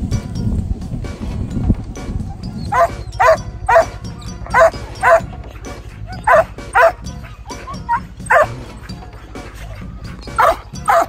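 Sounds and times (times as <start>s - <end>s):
dogs yelping: 2.3s - 11.0s.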